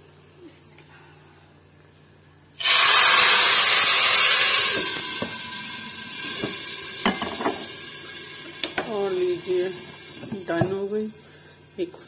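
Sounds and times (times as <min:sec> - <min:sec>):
hot oil sizzling: 0:02.6 - 0:12.0
cookware clinking: 0:06.4 - 0:07.7.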